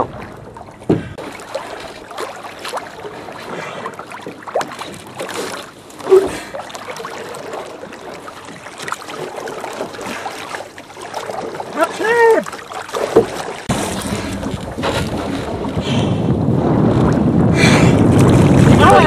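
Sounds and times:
splashes: 0.0s - 16.3s, 17.0s - 19.0s
water lapping against boat: 0.0s - 19.0s
knocks on boat: 0.8s - 1.2s.

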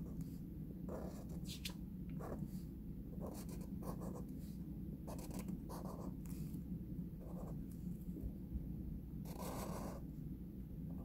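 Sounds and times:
marker scratching on paper: 0.0s - 2.5s, 3.2s - 4.2s, 5.1s - 6.5s, 9.3s - 10.0s
steady low hum: 0.0s - 11.0s.

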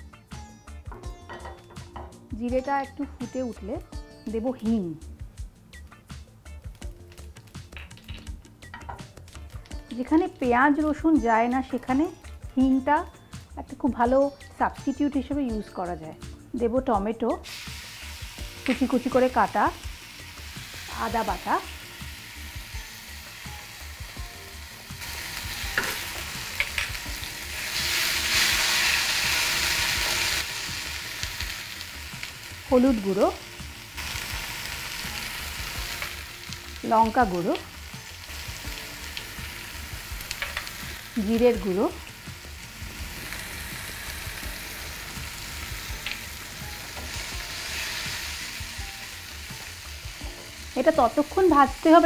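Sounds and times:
food sizzling in hot oil: 6.5s - 13.2s, 17.3s - 52.0s.

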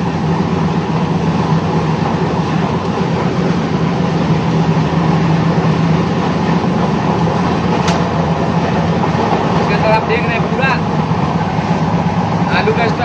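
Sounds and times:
train rumble inside coach: 0.0s - 13.0s.

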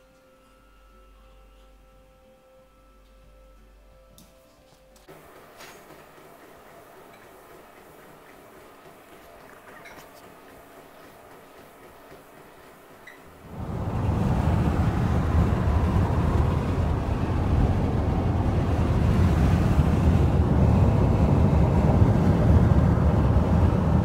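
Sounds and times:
car cabin road and engine noise: 13.4s - 24.0s.

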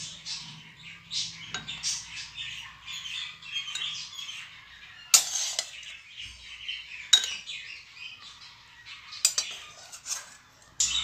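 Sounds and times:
birds chirping: 0.0s - 11.0s
spoon clinking on ceramic bowl: 7.1s - 7.5s.

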